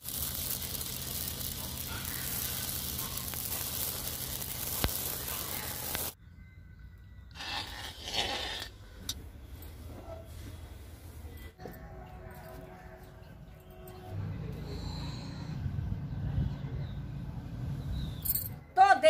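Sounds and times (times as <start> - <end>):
grains popping in hot pan: 0.0 - 6.2.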